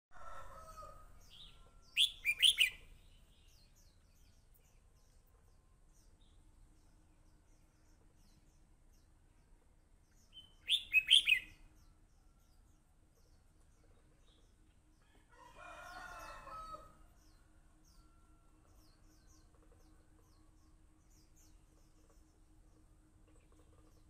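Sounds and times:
rooster crowing: 0.1 - 2.7, 15.2 - 17.0
bird singing whistled notes: 1.3 - 2.9, 10.3 - 11.6.

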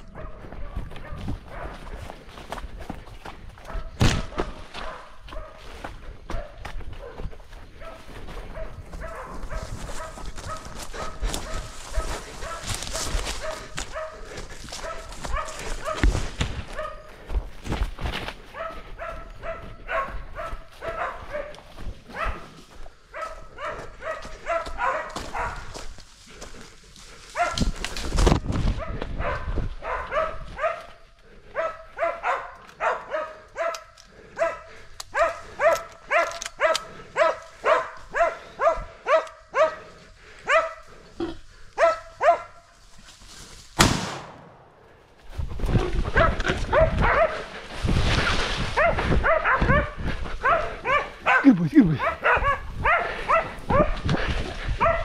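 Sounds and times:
dogs barking: 0.0 - 2.7, 3.5 - 17.4, 18.1 - 27.9, 28.7 - 42.8, 46.0 - 47.6, 48.8 - 55.0
sharp crack: 43.8 - 44.8.

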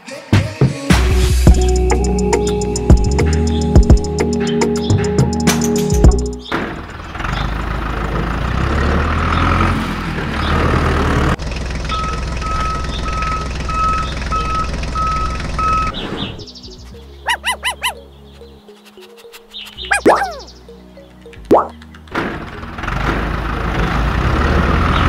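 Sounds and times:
heavy vehicle engine rumbling: 6.7 - 16.4, 22.1 - 25.0
reversing alarm beeping: 11.9 - 16.0
short rising chirps: 18.9 - 20.6.

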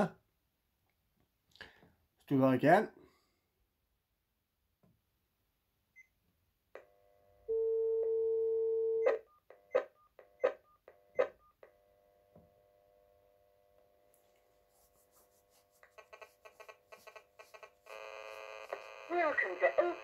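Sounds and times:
dial tone: 7.4 - 9.4, 17.5 - 20.0
keypad clicks and beeps: 9.0 - 11.6.

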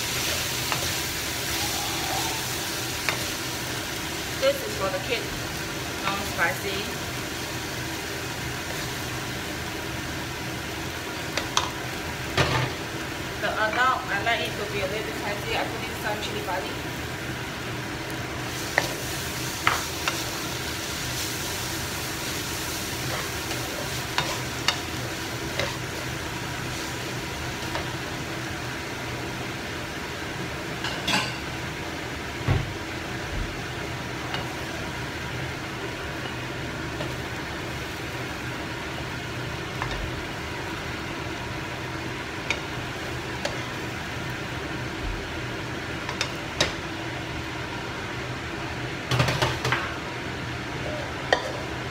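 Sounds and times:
food sizzling in a wok: 0.0 - 51.9.

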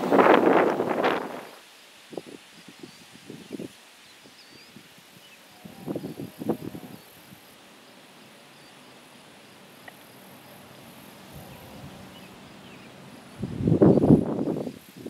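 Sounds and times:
insects chirping: 0.0 - 15.0
distant freight train rumble: 5.3 - 14.9.

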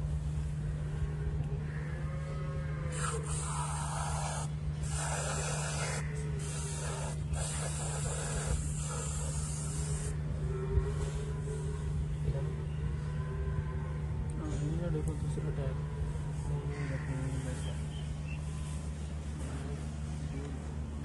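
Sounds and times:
aerosol spray can hissing: 3.0 - 10.1.

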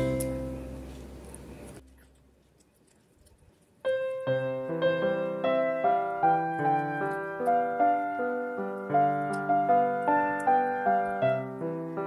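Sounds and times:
gentle piano music: 0.0 - 1.1, 3.8 - 12.0.

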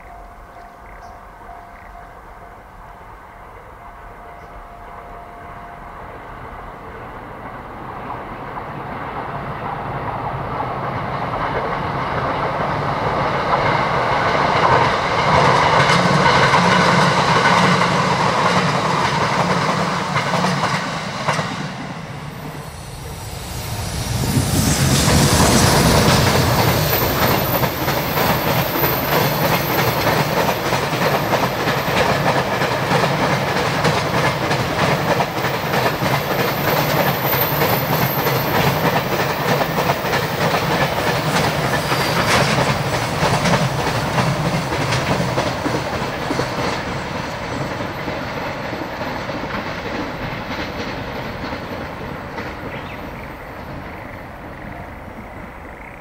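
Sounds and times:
electric train passing: 0.0 - 56.0
train wheels clattering over rail joints: 24.5 - 54.1.

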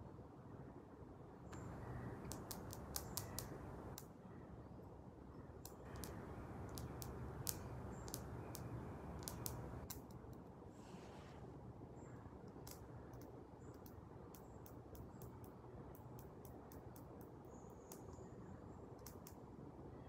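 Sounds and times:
faint low hum: 0.0 - 20.0
sharp clicks: 1.5 - 4.1, 5.6 - 10.4, 12.4 - 18.3, 19.0 - 19.4.

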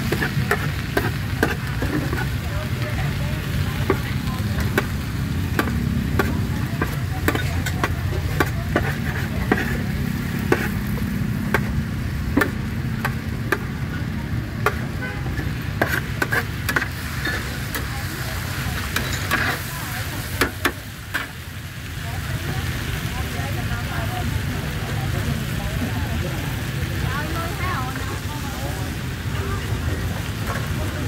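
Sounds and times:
food frying: 0.0 - 31.0
metal utensil clinking on pan: 6.2 - 8.9, 18.8 - 19.6.

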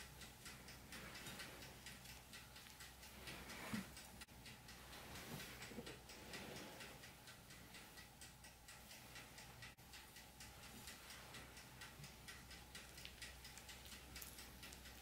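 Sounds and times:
hands mixing crumbly dough: 12.2 - 15.0.

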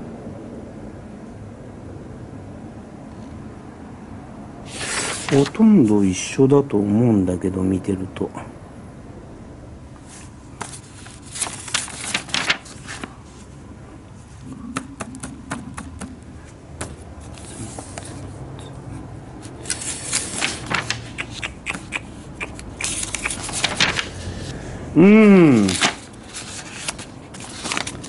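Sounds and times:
paper rustling and crinkling: 4.7 - 5.6, 10.1 - 13.6, 16.0 - 18.8, 19.4 - 24.6, 25.4 - 28.0.

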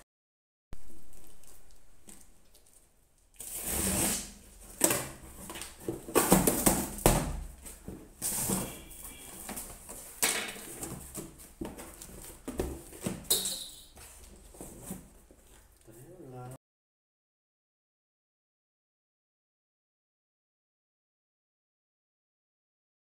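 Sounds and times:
cardboard rustling and scraping: 3.4 - 15.8.

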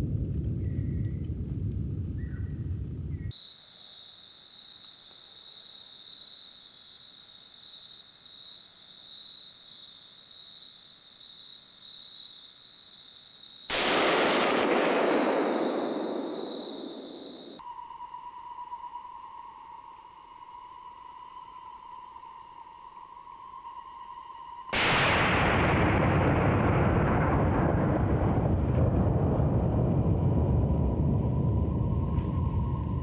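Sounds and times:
rifle shot: 13.7 - 17.6, 24.8 - 26.5.

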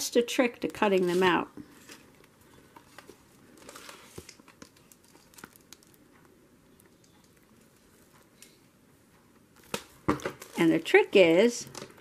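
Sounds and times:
paper pages rustling: 0.8 - 6.0.

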